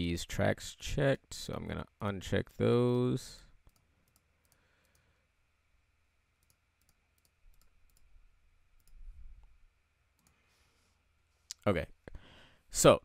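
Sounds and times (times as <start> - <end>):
faint computer mouse clicks: 6.4 - 8.1.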